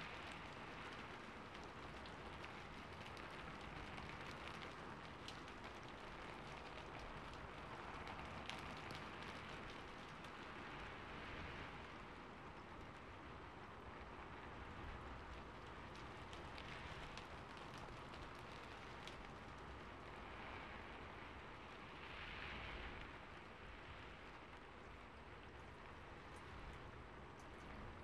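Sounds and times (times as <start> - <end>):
raindrops ticking: 0.0 - 22.0
rain hiss: 0.0 - 28.0.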